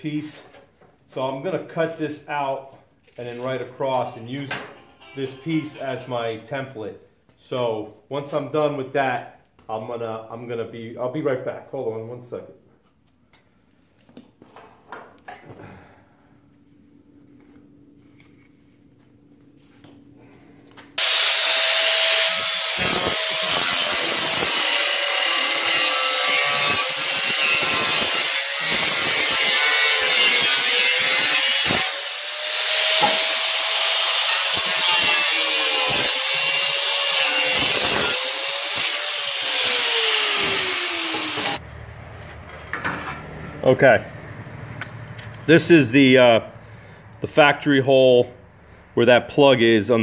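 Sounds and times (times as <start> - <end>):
angle grinder cutting metal: 21.0 - 41.6.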